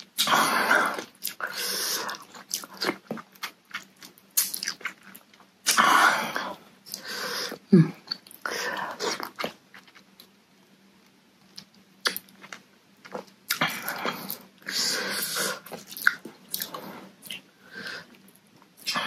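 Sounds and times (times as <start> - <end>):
wet chewing: 0.9 - 5.5, 15.3 - 17.4
lip smacks: 11.5 - 17.5.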